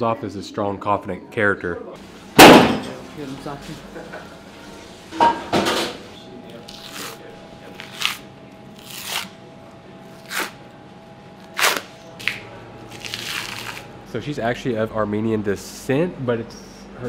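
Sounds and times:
steady machine hum: 2.0s - 17.0s
sharp knock: 2.4s - 3.0s
membrane tearing off ribs: 6.7s - 9.3s, 11.4s - 13.9s.

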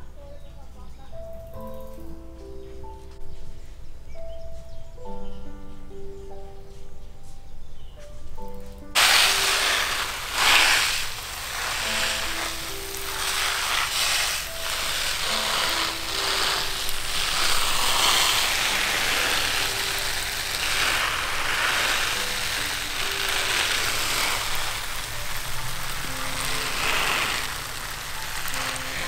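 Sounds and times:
soft background music: 0.0s - 29.0s
water spraying from hose: 8.9s - 29.0s.

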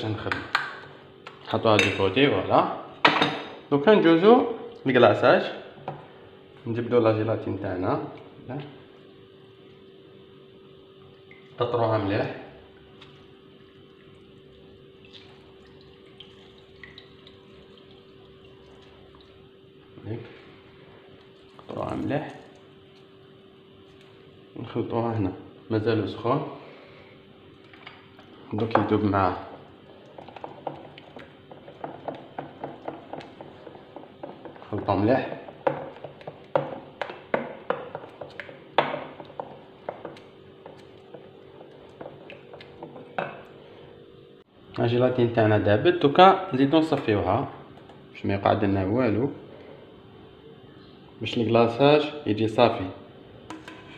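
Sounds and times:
faint steady hum: 0.0s - 53.9s
spoon knocking metal bowl: 53.5s - 53.9s.

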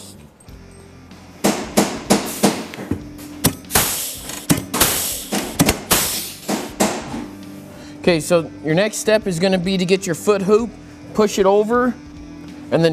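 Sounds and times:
background music: 0.0s - 12.9s.

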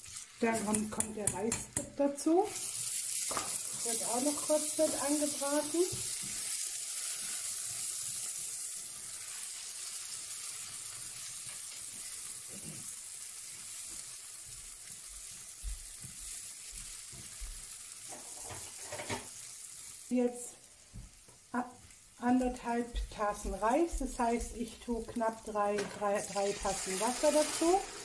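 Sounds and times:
rice sizzling in hot oil: 0.0s - 22.2s, 23.9s - 28.0s
spoon knocking pan: 0.5s - 2.0s, 3.3s - 3.6s, 22.4s - 26.8s.

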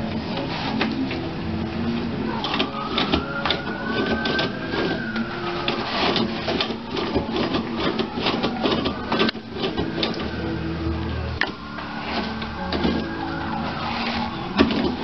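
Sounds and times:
toilet paper roll rattling: 2.2s - 10.5s, 11.4s - 15.0s
paper rustling and tearing: 2.8s - 9.9s.

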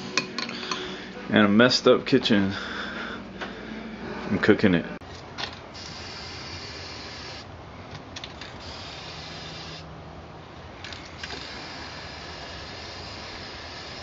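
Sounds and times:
aerosol can spraying: 5.7s - 7.5s, 8.4s - 9.9s, 11.2s - 14.0s.

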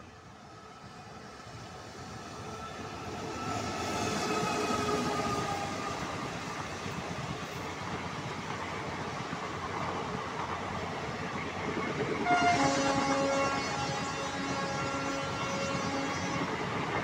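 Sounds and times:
train coaches rolling past: 0.0s - 17.0s
train horn chord: 12.2s - 16.6s.

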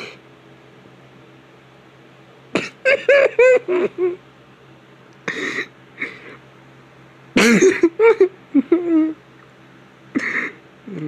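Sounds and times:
man giggling: 2.6s - 4.2s, 7.4s - 9.2s.

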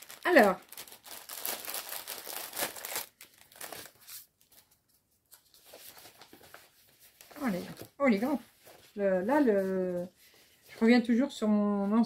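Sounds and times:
packaging crinkling: 0.0s - 4.7s.

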